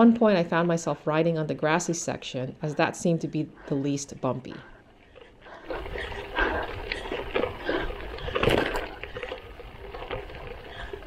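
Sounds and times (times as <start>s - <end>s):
bike rattling over bumps: 5.6s - 11.0s
bike tyres rumbling on gravel: 5.6s - 11.0s.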